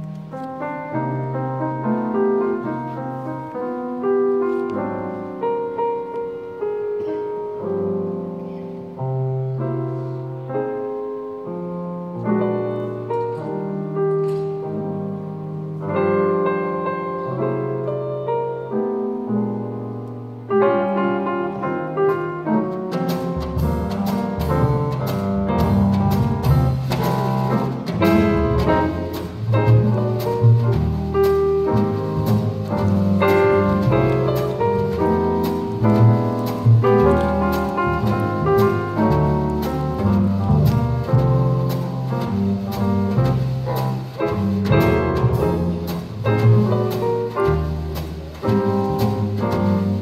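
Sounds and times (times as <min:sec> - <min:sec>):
slow jazz piano: 0:00.0 - 0:50.0
drums: 0:09.4 - 0:19.7, 0:20.4 - 0:50.0.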